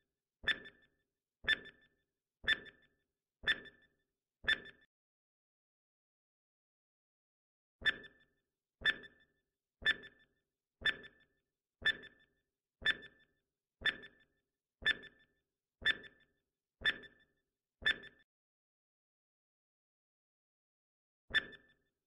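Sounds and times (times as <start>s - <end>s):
timer ticks: 0.4s - 0.9s, 1.5s - 3.9s, 4.5s - 4.9s, 7.8s - 8.2s, 8.8s - 9.2s, 9.8s - 16.2s, 16.8s - 17.2s, 17.8s - 18.2s.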